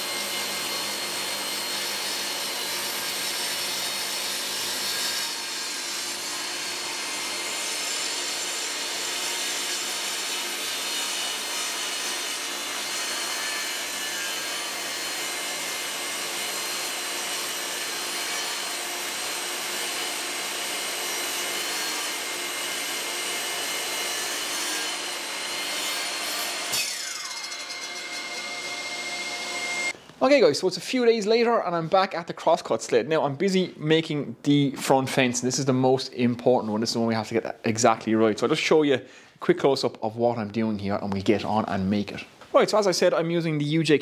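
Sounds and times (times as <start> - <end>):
table saw cutting with whine: 0.0 - 30.0.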